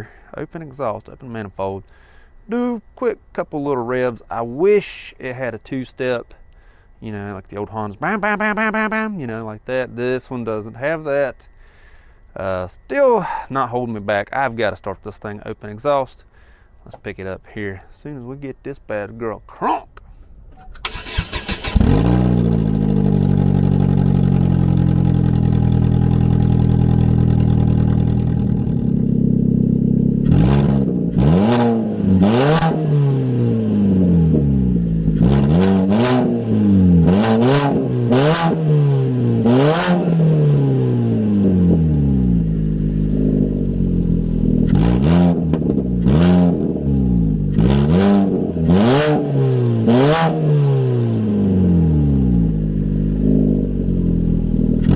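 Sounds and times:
engine cranking and catching: 20.5 - 28.5
engine idling and revving: 20.8 - 54.9.

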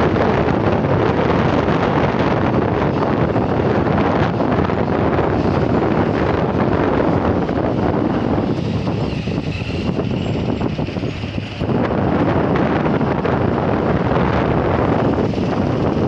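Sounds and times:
road and traffic noise: 0.0 - 16.0
wind rushing over microphone: 0.0 - 16.0.

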